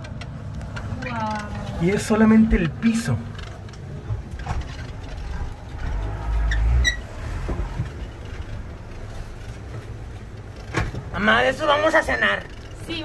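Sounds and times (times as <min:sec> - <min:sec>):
brief high squeak: 0:06.4 - 0:07.1.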